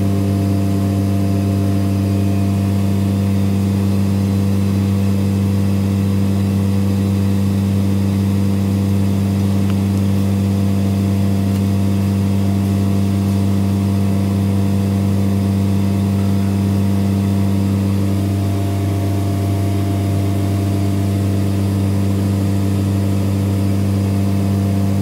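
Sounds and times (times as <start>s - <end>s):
vacuum pump humming: 0.0s - 25.0s.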